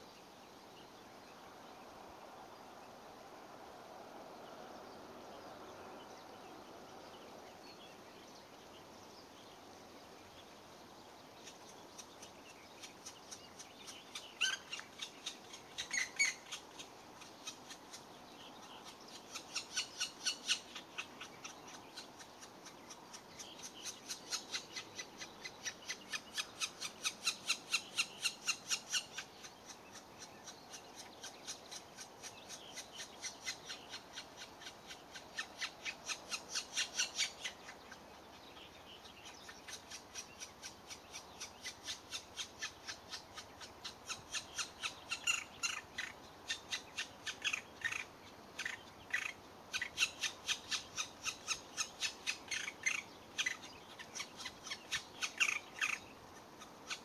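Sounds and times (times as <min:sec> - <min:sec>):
woodpecker nestlings begging calls: 0:11.4 - 0:38.1, 0:39.2 - 0:57.0.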